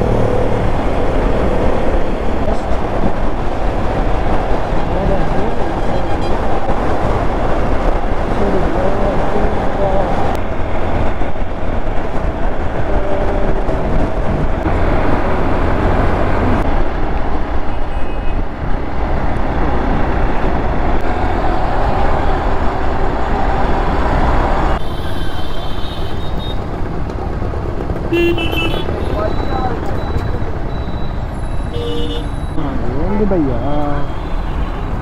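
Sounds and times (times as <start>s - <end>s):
wind rushing over microphone: 0.0s - 24.9s
road traffic: 0.0s - 35.0s.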